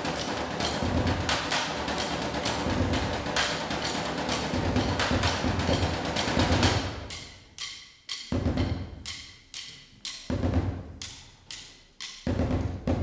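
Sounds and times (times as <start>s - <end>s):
percussion ensemble drumming: 0.0s - 13.0s.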